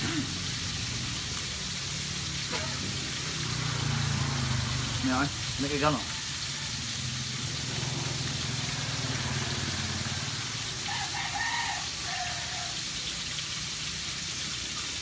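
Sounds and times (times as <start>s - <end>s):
rooster crowing: 5.8s - 7.9s, 8.6s - 13.0s.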